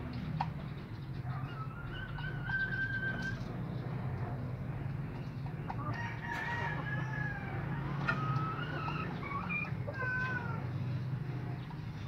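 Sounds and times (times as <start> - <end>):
rooster crowing: 5.9 - 8.6.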